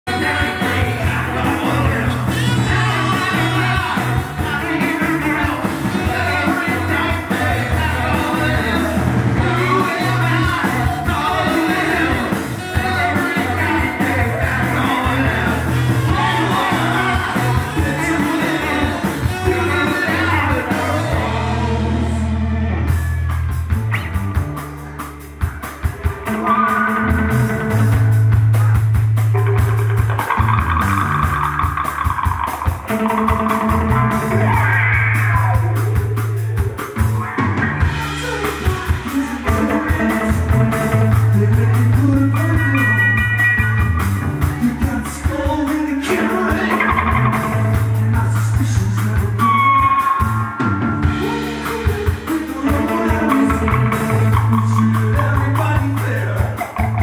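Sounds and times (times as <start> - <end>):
bass line: 0.0 - 57.0
electric guitars: 0.0 - 57.0
person singing: 0.1 - 23.1, 30.2 - 57.0
drum kit: 0.1 - 57.0
live rock band playing: 0.1 - 57.0
congas: 23.4 - 57.0.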